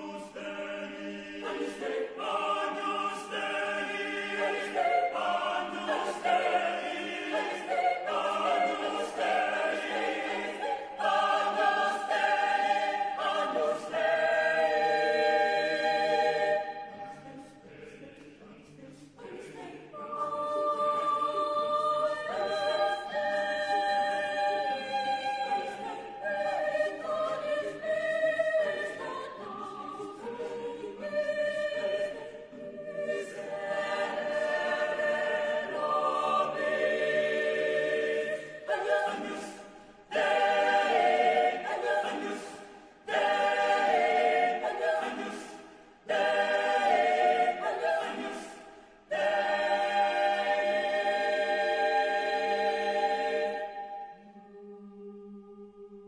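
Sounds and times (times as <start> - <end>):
choir singing a cappella: 0.0 - 56.0.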